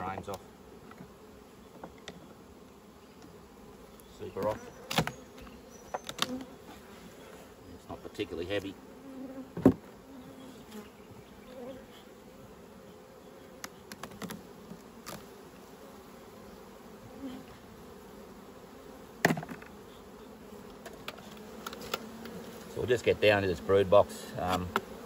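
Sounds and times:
bees buzzing: 0:00.0 - 0:25.0
hive equipment clicks: 0:04.0 - 0:06.5, 0:13.6 - 0:14.4.

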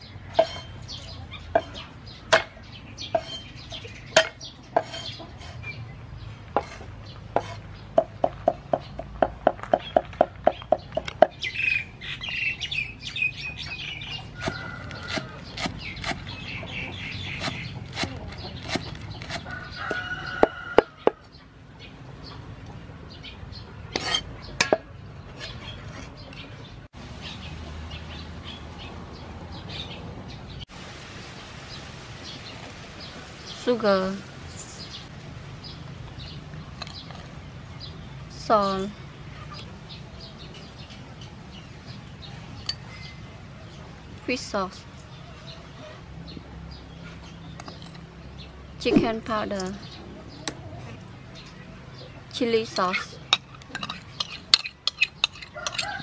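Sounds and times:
cleaver chopping on wooden board: 0:14.4 - 0:16.3, 0:17.3 - 0:21.2.

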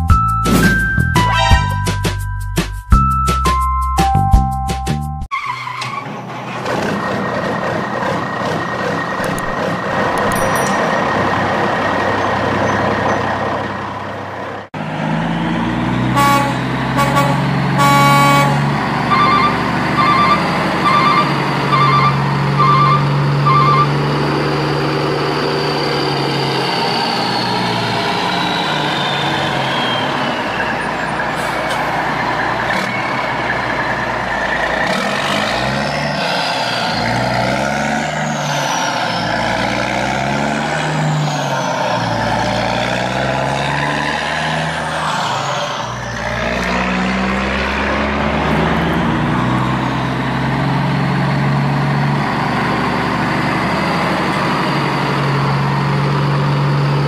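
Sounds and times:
truck horn blasts: 0:01.2 - 0:01.9, 0:16.0 - 0:24.0
truck engine running: 0:06.0 - 0:36.2, 0:45.8 - 0:57.0
engine whine: 0:06.0 - 0:57.0
short horn toots: 0:16.2 - 0:23.9.

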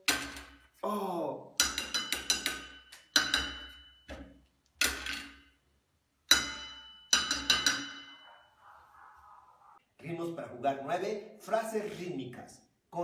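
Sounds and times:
wooden sticks striking a plate: 0:00.0 - 0:00.8, 0:01.6 - 0:05.6, 0:06.2 - 0:08.6.

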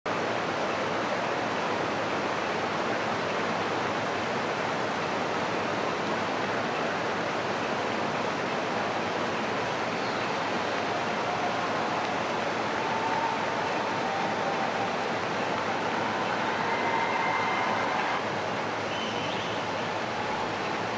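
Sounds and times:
heavy rain pouring: 0:00.1 - 0:20.9.

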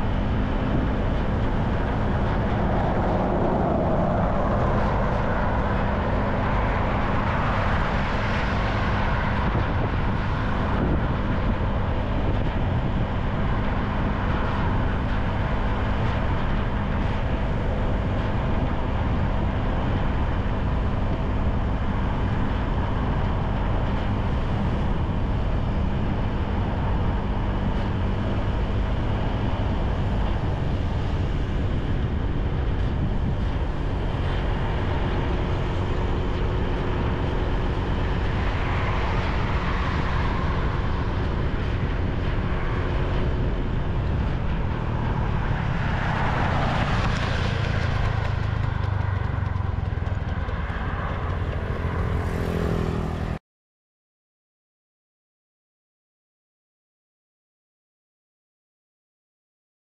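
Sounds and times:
traffic noise: 0:00.0 - 0:53.4
wind rumble on microphone: 0:00.0 - 0:53.4
motorcycle engine: 0:33.4 - 0:53.4.

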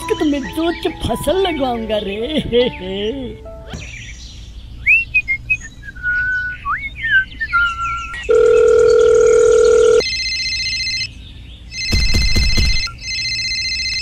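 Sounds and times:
whistled chirps gliding in pitch: 0:04.8 - 0:08.2
electronic phone ringtone: 0:08.2 - 0:11.1, 0:11.7 - 0:14.0
steady phone tone: 0:08.2 - 0:11.1, 0:11.7 - 0:14.0.

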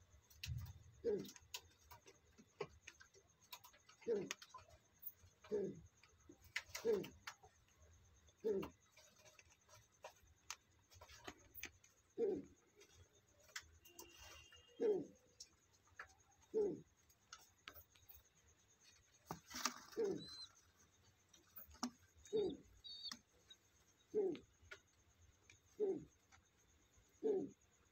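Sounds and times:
pigeons cooing: 0:01.0 - 0:02.0, 0:02.6 - 0:04.6, 0:05.4 - 0:07.6, 0:08.4 - 0:10.2, 0:11.0 - 0:13.0, 0:14.8 - 0:15.4, 0:16.4 - 0:17.0, 0:19.2 - 0:24.8, 0:25.6 - 0:26.4, 0:27.1 - 0:27.9.

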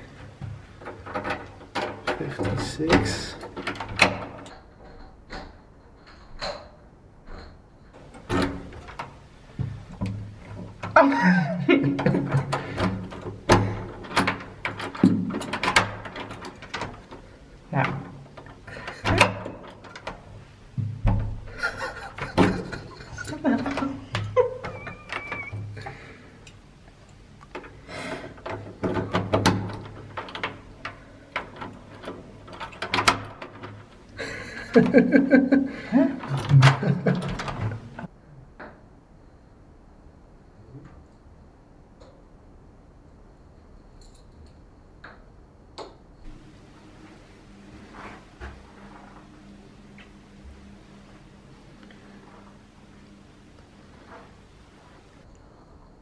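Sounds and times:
door lock clicks and knocks: 0:00.4 - 0:04.7, 0:08.0 - 0:11.0, 0:11.8 - 0:25.8, 0:28.4 - 0:34.1.

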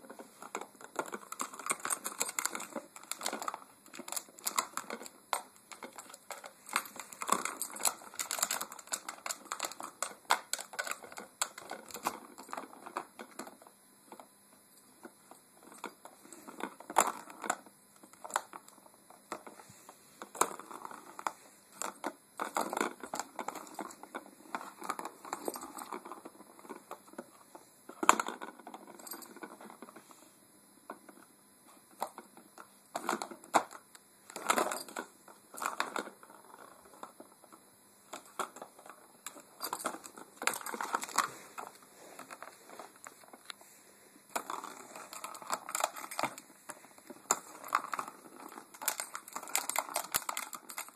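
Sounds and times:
plastic toy clicking and rattling: 0:00.4 - 0:13.6, 0:44.4 - 0:50.9.

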